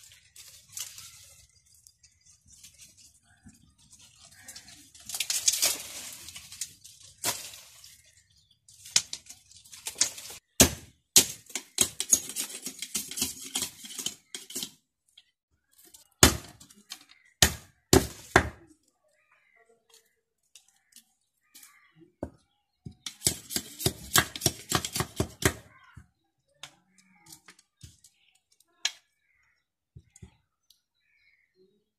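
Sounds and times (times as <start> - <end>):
dry rustling of strips: 0.0 - 10.5.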